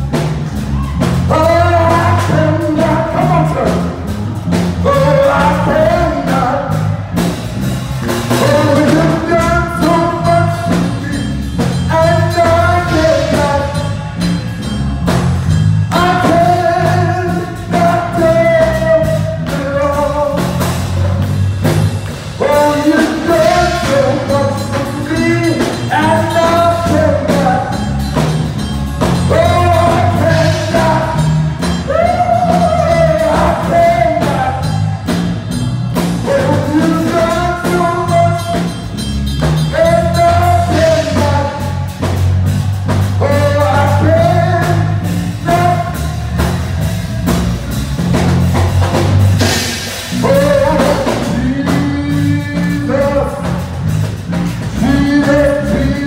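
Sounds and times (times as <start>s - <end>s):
band with steady beat: 0.0s - 56.0s
person singing long notes: 50.1s - 53.6s.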